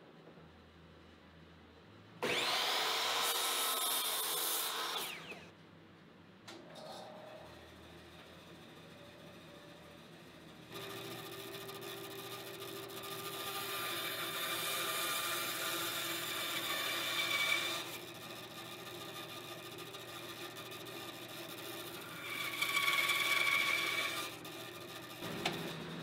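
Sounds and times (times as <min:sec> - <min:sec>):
bandsaw cutting wood: 0:02.2 - 0:05.4, 0:10.8 - 0:26.0.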